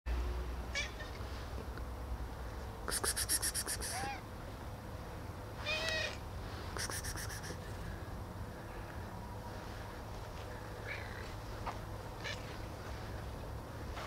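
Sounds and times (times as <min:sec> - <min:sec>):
cats meowing: 0:03.8 - 0:04.2, 0:05.6 - 0:06.2.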